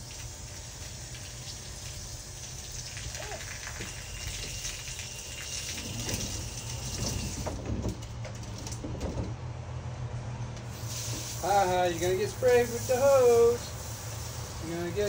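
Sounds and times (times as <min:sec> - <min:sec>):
hose water spraying on toy car: 0:00.0 - 0:07.6, 0:10.6 - 0:15.0.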